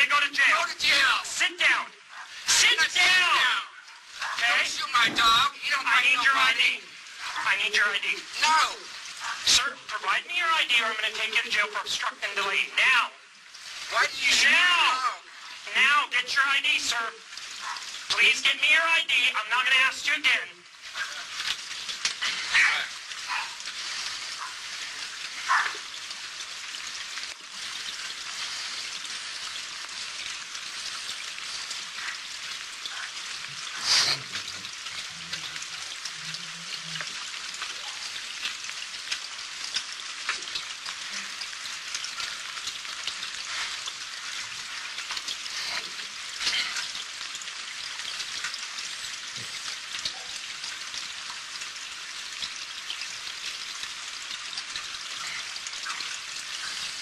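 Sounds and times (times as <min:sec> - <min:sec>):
crackling hiss: 0:00.0 - 0:57.0.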